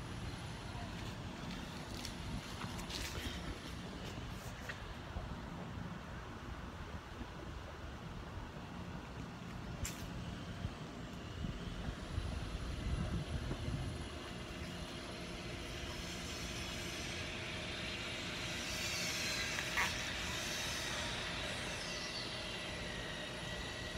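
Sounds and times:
wind rumbling on microphone: 0:10.5 - 0:15.1.

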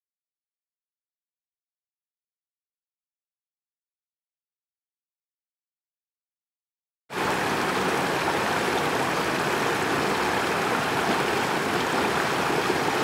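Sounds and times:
creek running over rocks: 0:07.1 - 0:13.0.

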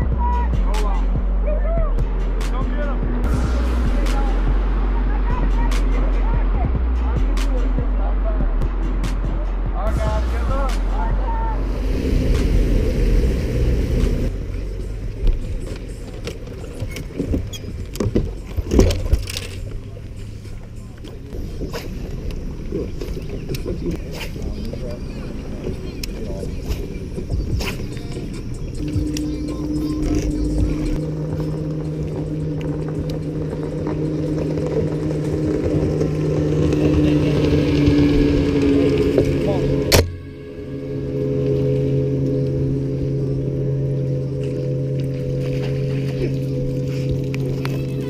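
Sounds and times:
outboard engine rumbling: 0:00.0 - 0:48.0
wind and water noise: 0:00.0 - 0:48.0
electric trolling motor humming: 0:11.5 - 0:48.0.

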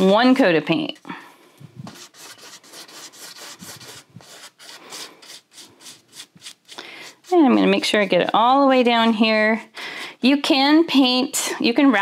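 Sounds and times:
paintbrush rubbing on canvas: 0:01.8 - 0:08.2.

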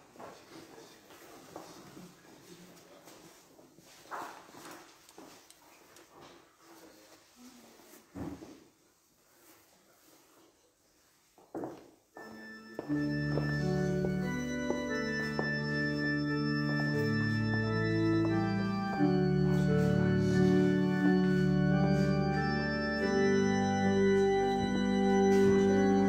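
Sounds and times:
organ playing slow chords: 0:12.2 - 0:26.0.

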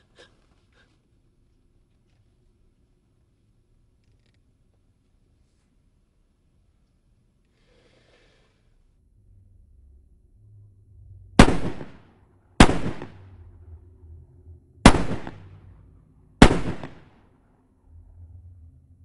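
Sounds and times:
faint low rumble: 0:00.0 - 0:07.6, 0:08.3 - 0:19.0
handgun shots: 0:11.4 - 0:12.0, 0:12.6 - 0:13.2, 0:14.9 - 0:15.5, 0:16.4 - 0:17.1.

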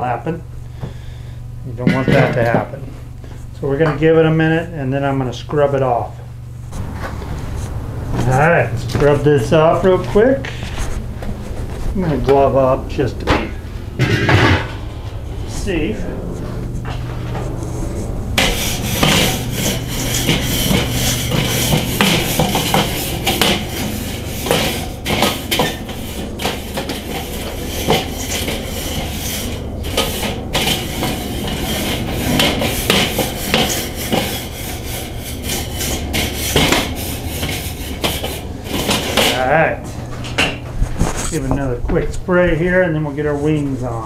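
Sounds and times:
steady low hum: 0:00.0 - 0:44.0
grill brush scraping metal grate: 0:06.8 - 0:40.0.

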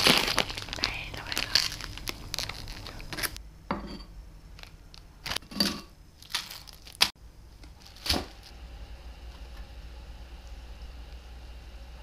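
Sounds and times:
plastic sachets crinkling: 0:00.0 - 0:03.4, 0:06.2 - 0:07.2, 0:07.8 - 0:08.5.

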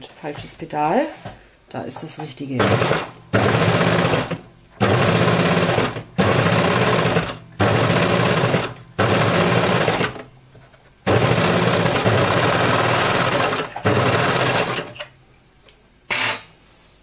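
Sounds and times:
sewing machine stitching: 0:02.6 - 0:10.3, 0:11.1 - 0:15.1.

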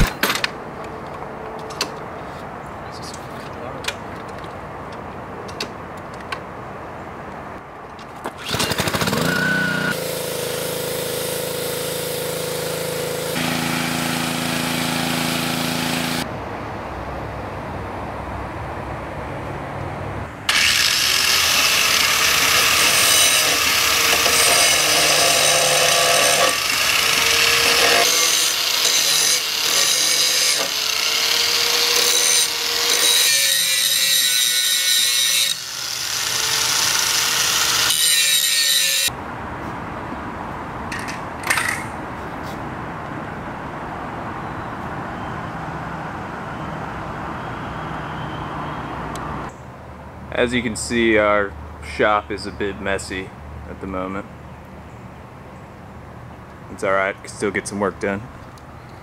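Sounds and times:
angle grinder grinding metal: 0:08.4 - 0:16.2, 0:20.5 - 0:39.1.

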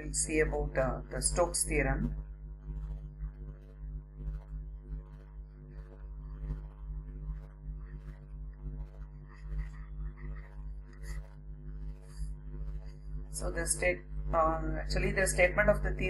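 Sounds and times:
steady low hum: 0:00.0 - 0:16.0
stylus scratching on tablet: 0:00.0 - 0:16.0.

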